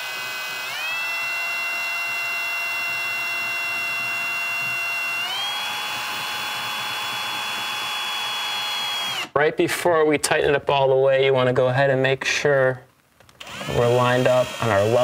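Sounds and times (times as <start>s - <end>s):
cordless drill motor whining: 0.0s - 9.3s, 13.4s - 15.0s.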